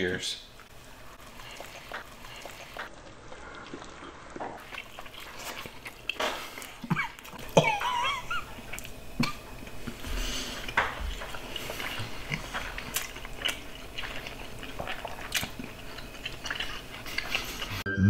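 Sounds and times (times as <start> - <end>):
people chewing: 0.6 - 17.8.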